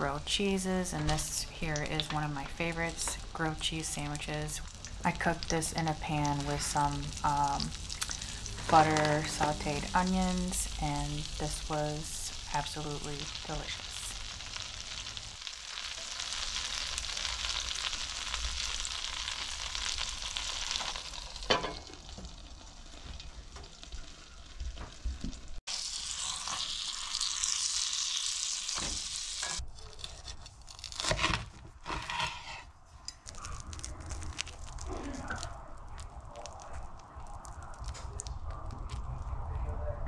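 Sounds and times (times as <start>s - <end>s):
sandwich sizzling in a pan: 0.0s - 32.6s
knocks and scrapes: 29.5s - 33.3s.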